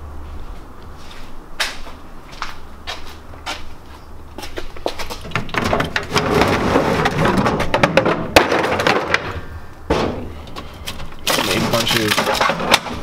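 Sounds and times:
plastic case rattling: 0:11.0 - 0:13.0.

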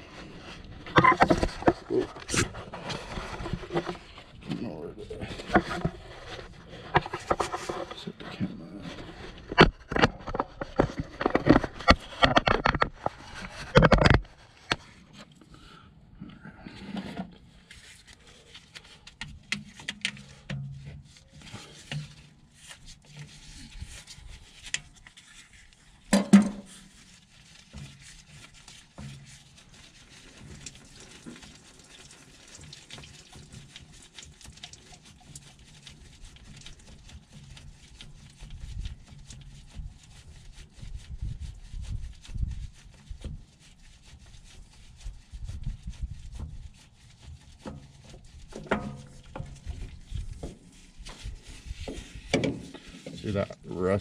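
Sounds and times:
gloved hands rubbing and clicking: 0:08.9 - 0:15.4, 0:17.4 - 0:54.0.

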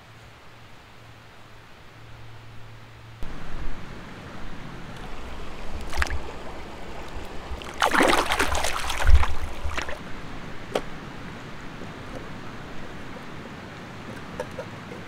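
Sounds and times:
creek water splashing: 0:03.2 - 0:13.4.

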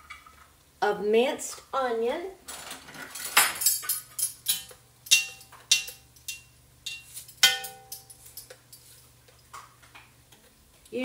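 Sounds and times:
kitchenware tapping: 0:03.1 - 0:08.6.

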